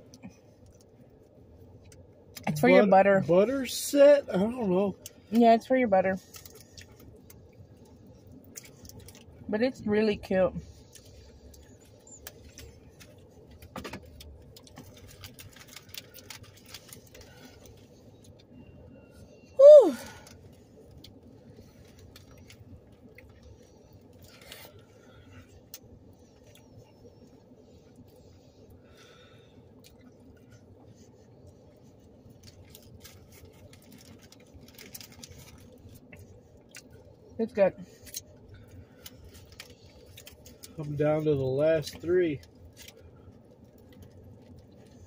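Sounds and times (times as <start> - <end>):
low background noise: 0.0 - 45.0
low steady hum: 0.0 - 45.0
foil crinkling while eating: 6.1 - 9.4, 10.7 - 18.5, 19.9 - 37.2, 37.9 - 45.0
chewing: 29.6 - 37.2.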